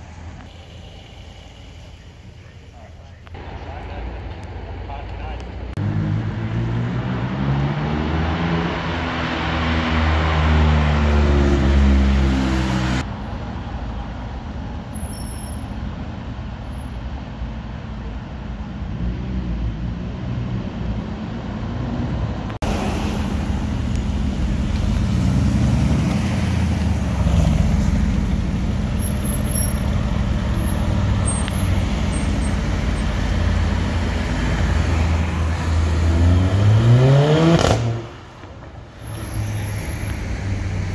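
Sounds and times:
general traffic: 0.0s - 40.9s
sports car engine accelerating: 22.7s - 38.2s.

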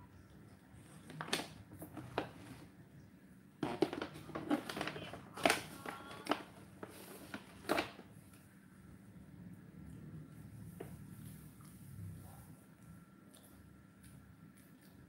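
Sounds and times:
plastic packet crinkling: 3.6s - 8.0s.

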